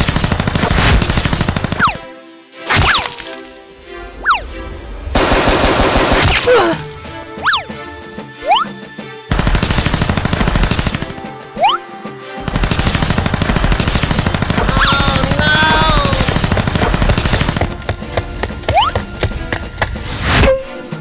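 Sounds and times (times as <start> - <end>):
rattling like automatic gunfire: 5.2 - 6.4, 9.3 - 11.2, 12.4 - 17.7.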